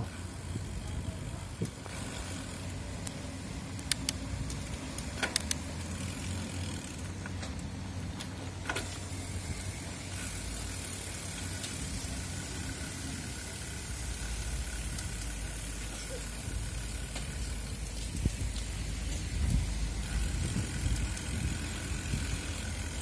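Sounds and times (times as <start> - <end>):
bicycle tyres rumbling on concrete: 0.0 - 23.0
sharp clicks: 3.0 - 5.7.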